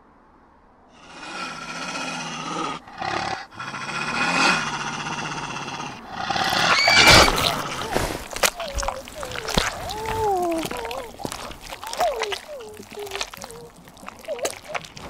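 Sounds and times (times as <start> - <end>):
deep animal growl: 1.0 - 15.0.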